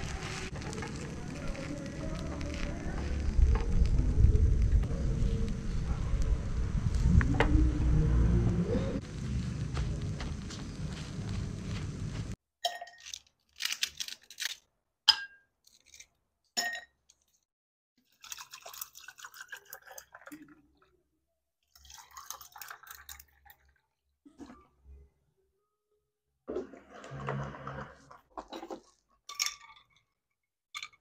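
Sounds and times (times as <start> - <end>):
wooden skewers scraping a pan: 0.0 - 3.6
steady rushing noise: 0.0 - 12.4.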